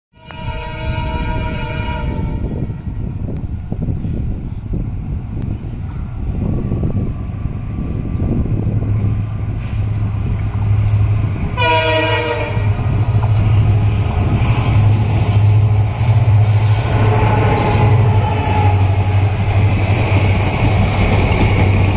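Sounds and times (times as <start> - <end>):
locomotive horn blast: 0.1 - 2.8, 11.6 - 19.6
diesel locomotive engine drone: 0.2 - 21.9.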